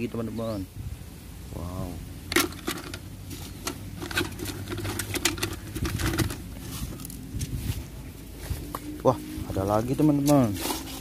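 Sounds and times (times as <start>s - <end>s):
plastic toy cars clattering: 2.3s - 3.0s, 3.6s - 6.5s.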